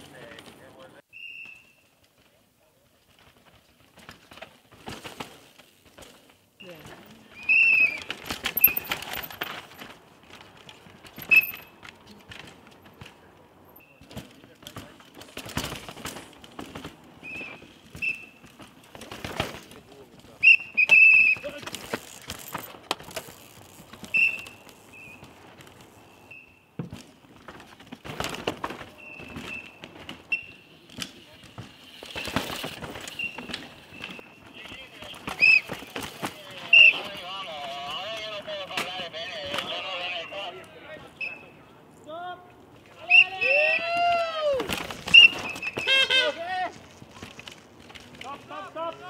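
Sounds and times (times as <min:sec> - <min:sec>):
bikes rattling over rocks: 0:01.6 - 0:41.6, 0:42.7 - 0:49.0
disc brakes squealing: 0:06.6 - 0:09.1, 0:11.2 - 0:11.8, 0:17.2 - 0:18.5, 0:20.4 - 0:21.6, 0:23.9 - 0:26.7, 0:28.9 - 0:30.8, 0:31.9 - 0:37.2, 0:41.1 - 0:41.6, 0:45.0 - 0:46.4
tyres and chain clattering: 0:06.6 - 0:26.1.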